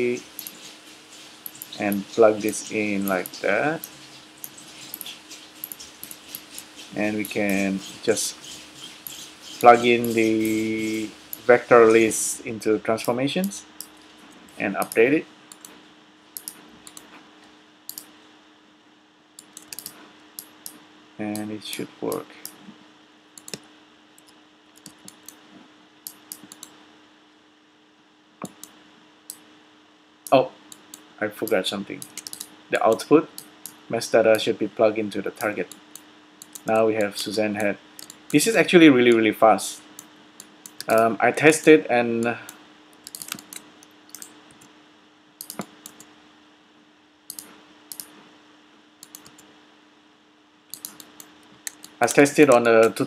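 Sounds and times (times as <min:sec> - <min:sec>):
faint steady hum: 0:00.0 - 0:53.0
computer mouse and keyboard clicks: 0:00.1 - 0:11.5, 0:14.8 - 0:15.8, 0:16.4 - 0:17.1, 0:17.9 - 0:18.1, 0:19.4 - 0:22.6, 0:23.4 - 0:25.4, 0:26.1 - 0:26.8, 0:28.4 - 0:29.4, 0:30.7 - 0:34.4, 0:35.4 - 0:38.5, 0:40.0 - 0:41.0, 0:43.0 - 0:44.7, 0:45.4 - 0:46.1, 0:47.3 - 0:48.1, 0:49.0 - 0:49.5, 0:50.7 - 0:53.0.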